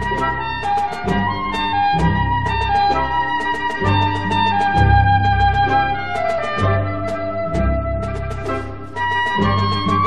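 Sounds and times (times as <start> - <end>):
low bass notes: 3.9 - 10.0.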